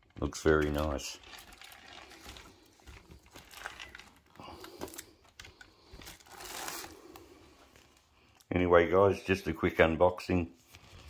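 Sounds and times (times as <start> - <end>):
plastic wrapping crinkling: 0.0 - 8.5.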